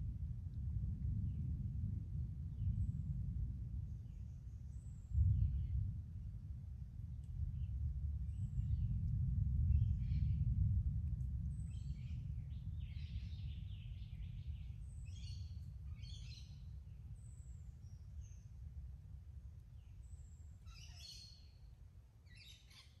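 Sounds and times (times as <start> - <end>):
distant rolling thunder: 5.0 - 16.4.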